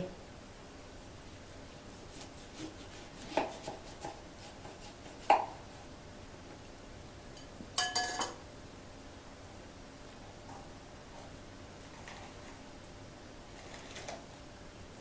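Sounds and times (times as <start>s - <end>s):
knife cutting lemon: 2.0s - 5.6s
glass bowl ringing: 7.4s - 8.4s.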